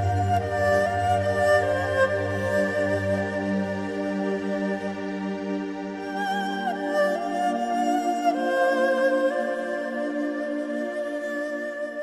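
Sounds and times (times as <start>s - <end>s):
calm new-age music: 0.0s - 12.0s.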